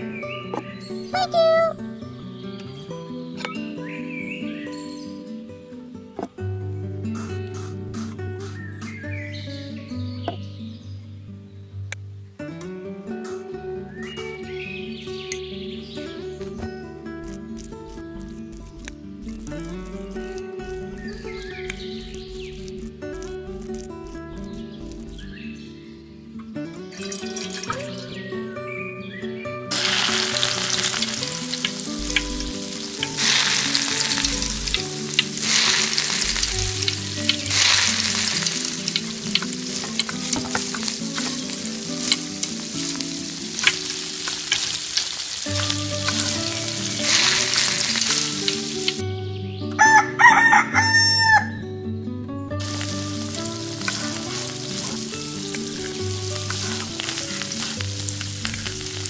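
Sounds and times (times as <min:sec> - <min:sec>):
food sizzling in hot oil: 0:17.2 - 0:25.3, 0:27.0 - 0:28.0, 0:29.7 - 0:49.0, 0:52.6 - 0:59.0
rooster crowing: 0:49.8 - 0:51.6.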